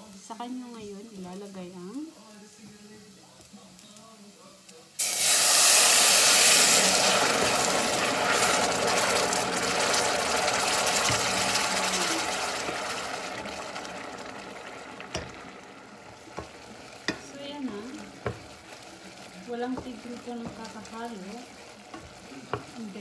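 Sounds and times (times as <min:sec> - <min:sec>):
liquid sizzling in hot pot: 0:00.0 - 0:23.0
wooden spoon stirring: 0:07.4 - 0:23.0
spoon knocking against pot: 0:11.0 - 0:11.5, 0:15.0 - 0:15.6, 0:16.3 - 0:18.7, 0:19.7 - 0:21.0, 0:21.9 - 0:22.8.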